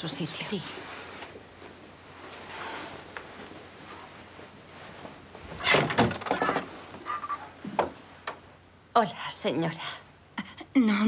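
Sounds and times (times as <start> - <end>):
faint rustling: 0.5 - 8.6.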